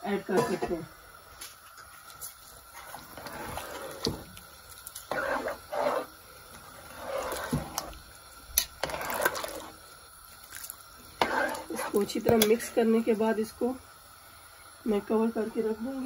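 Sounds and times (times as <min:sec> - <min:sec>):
liquid sloshing in pot: 0:02.4 - 0:12.7.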